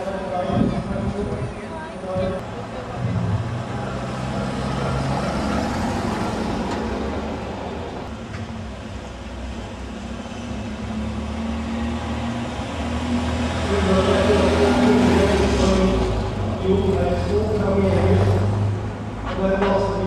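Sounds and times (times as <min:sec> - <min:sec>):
sports car engine passing close: 0:02.2 - 0:20.0
cars driving over cobblestones: 0:02.3 - 0:20.0.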